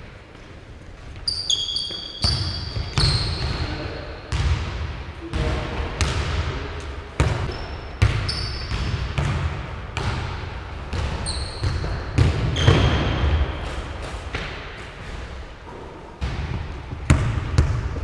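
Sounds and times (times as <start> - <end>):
sneaker squeaks on wood: 1.2 - 3.7, 7.4 - 8.8, 11.2 - 13.1
basketball bouncing on wood floor: 4.3 - 5.4, 7.2 - 13.4, 16.2 - 18.0.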